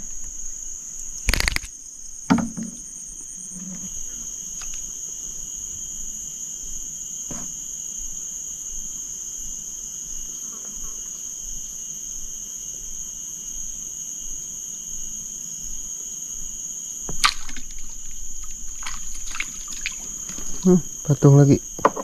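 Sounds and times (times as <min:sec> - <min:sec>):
high insect chorus: 0:00.0 - 0:22.0
low insect drone: 0:00.0 - 0:22.0
loud clicks: 0:01.3 - 0:01.7
sharp knock: 0:02.3 - 0:02.8.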